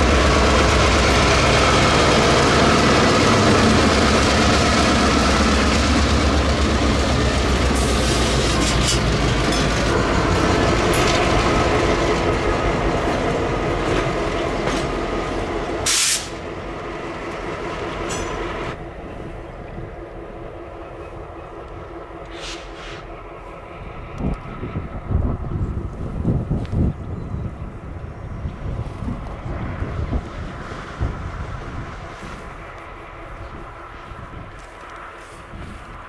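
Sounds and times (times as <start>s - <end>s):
wheels clattering on rail: 0.0s - 18.8s
diesel locomotive engines rumbling: 0.0s - 36.0s.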